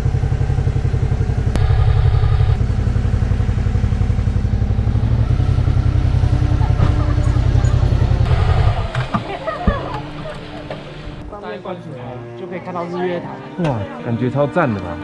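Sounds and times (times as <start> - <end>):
motorcycle engine throbbing: 0.0 - 11.2.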